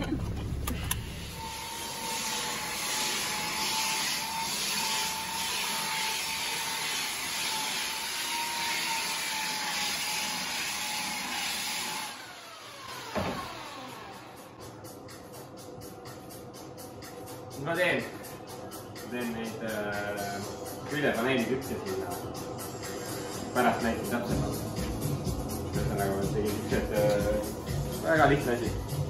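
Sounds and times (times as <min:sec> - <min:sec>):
motor winding down: 0:00.0 - 0:05.3, 0:11.8 - 0:14.6
belt sander on wood: 0:01.1 - 0:14.4.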